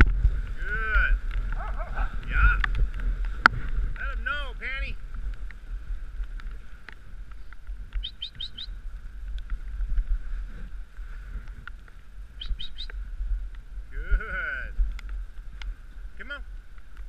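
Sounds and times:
dog sled rumbling on snow: 0:00.0 - 0:08.0
small bird chirping: 0:08.0 - 0:08.8, 0:12.4 - 0:13.0.

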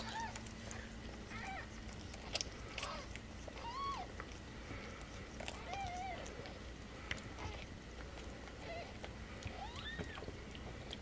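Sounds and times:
kittens mewing: 0:00.0 - 0:10.4.

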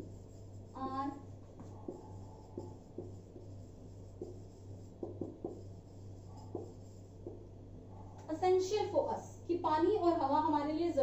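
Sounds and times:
marker writing on whiteboard: 0:00.0 - 0:08.4
low steady hum: 0:00.0 - 0:11.0.

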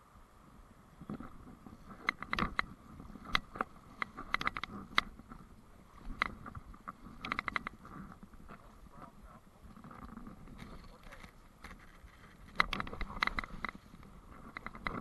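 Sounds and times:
fly reel ratchet clicking: 0:01.9 - 0:05.3, 0:07.1 - 0:08.0.

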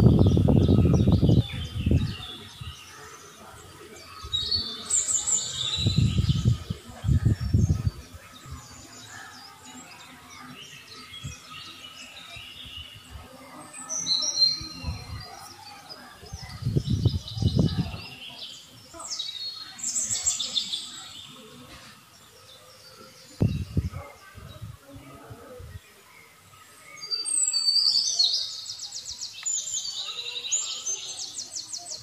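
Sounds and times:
low rumbling microphone noise: 0:00.0 - 0:04.8, 0:05.6 - 0:09.0, 0:16.1 - 0:18.4, 0:23.3 - 0:25.9
small birds chirping: 0:00.0 - 0:32.0.

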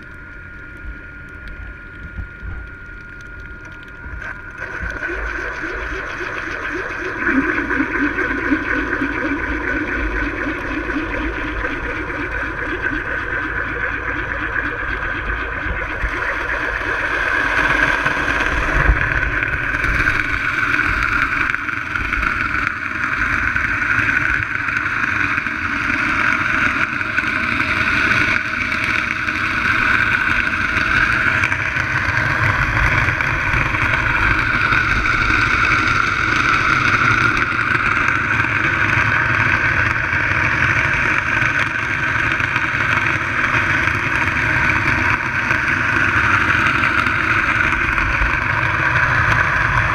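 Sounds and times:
underwater drone and hiss: 0:00.0 - 0:49.9.

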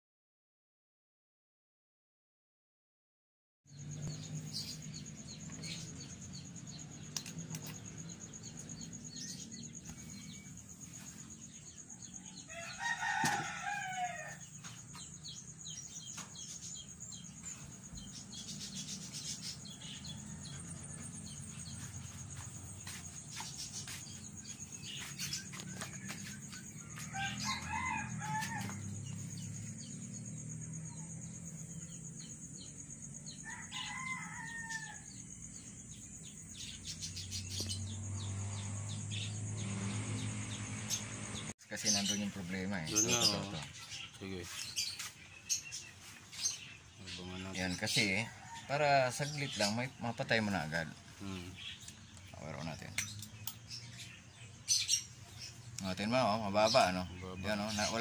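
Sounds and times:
rooster crowing: 0:11.4 - 0:15.8, 0:18.1 - 0:22.0, 0:24.4 - 0:32.3, 0:33.2 - 0:41.5, 0:47.9 - 0:49.7
low hum: 0:36.9 - 0:41.5.

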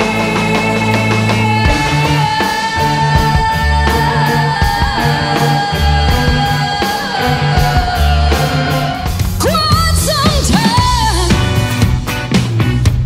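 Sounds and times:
pulsing bass line: 0:00.0 - 0:13.0
rock band music: 0:00.0 - 0:13.0
long high guitar note: 0:01.7 - 0:09.7.

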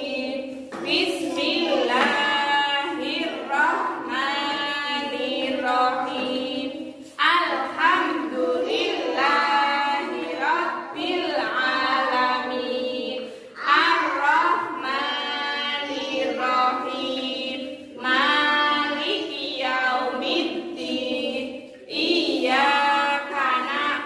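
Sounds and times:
woman and children singing: 0:00.0 - 0:24.0.

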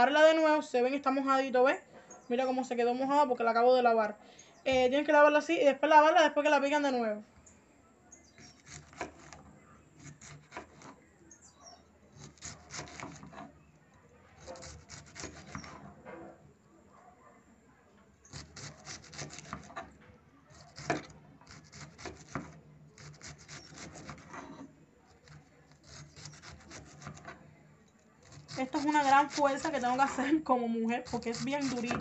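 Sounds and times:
knife shredding cabbage: 0:08.4 - 0:09.4, 0:10.0 - 0:11.0, 0:12.1 - 0:13.5, 0:14.4 - 0:15.8, 0:18.3 - 0:19.9, 0:20.5 - 0:27.4, 0:28.2 - 0:30.1, 0:31.0 - 0:32.0.

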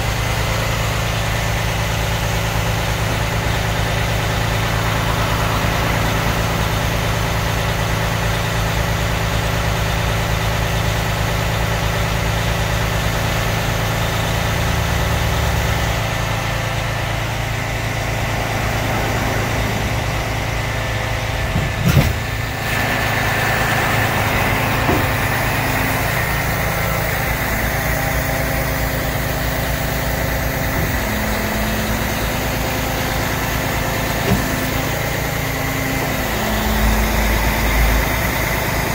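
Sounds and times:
forklift engine idling: 0:00.0 - 0:38.9
clunk: 0:21.4 - 0:22.4, 0:24.8 - 0:25.4, 0:34.1 - 0:34.9.

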